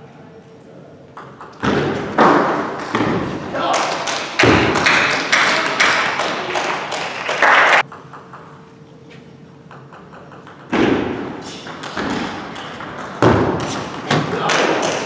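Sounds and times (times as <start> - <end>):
table tennis ball bouncing: 1.2 - 7.0, 7.8 - 8.6, 9.6 - 15.0
loud hall noise: 1.5 - 8.0, 10.1 - 15.0.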